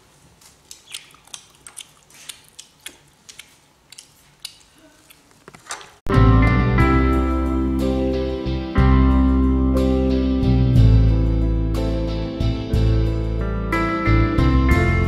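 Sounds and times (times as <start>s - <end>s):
loud guitar music: 6.1s - 15.0s.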